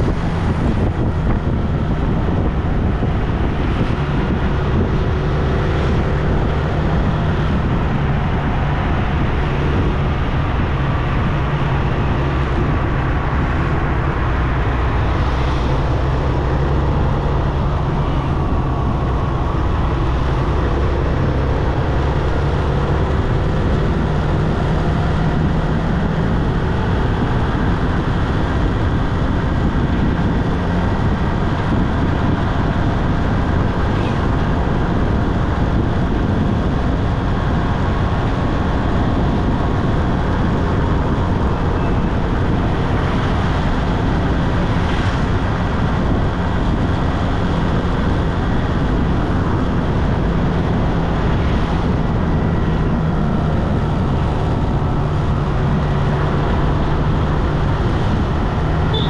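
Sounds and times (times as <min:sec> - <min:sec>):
wind rushing on microphone: 0:00.0 - 0:59.0
motorcycle engine running: 0:58.2 - 0:59.0.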